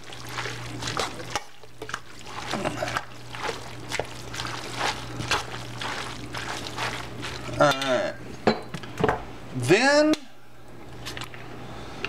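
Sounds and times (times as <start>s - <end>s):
noodles squishing in a steel bowl: 0.0s - 8.2s.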